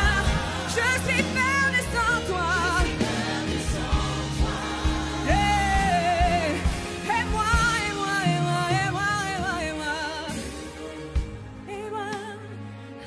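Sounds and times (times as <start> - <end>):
band with drums: 0.0 - 11.6
woman singing with vibrato: 5.2 - 10.4.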